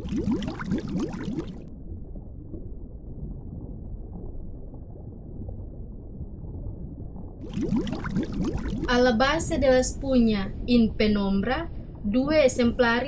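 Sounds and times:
low muffled rumbling: 8.8 - 13.0.

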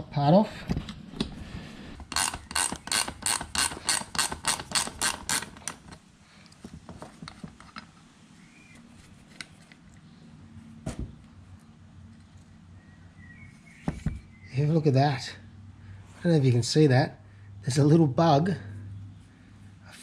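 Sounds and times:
ratcheting spanner clicking: 2.0 - 6.0.

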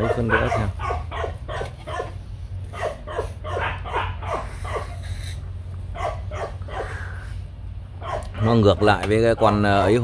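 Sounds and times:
dog yipping and barking: 0.0 - 5.1, 5.9 - 7.0, 8.0 - 9.0.

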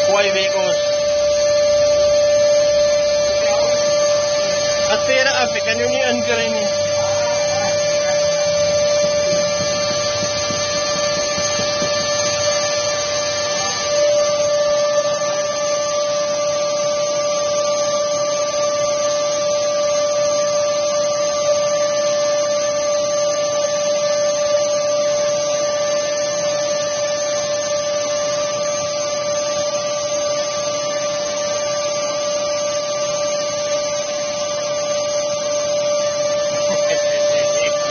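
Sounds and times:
shop vacuum motor whine: 0.0 - 37.9
air rushing through hose: 6.6 - 15.4.

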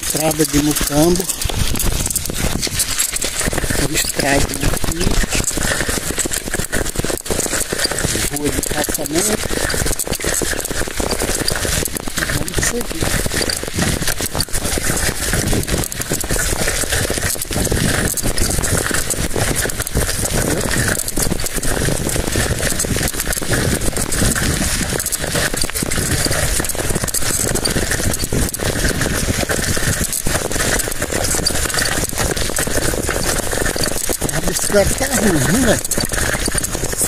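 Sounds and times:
wind buffeting microphone: 0.0 - 9.9
bicycle rattling over rough road: 0.0 - 37.0.

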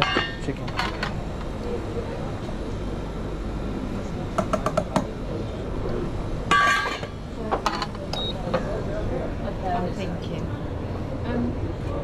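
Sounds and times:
utensils and containers clinking: 0.0 - 1.2, 6.5 - 8.0
low background hum: 0.0 - 12.0.

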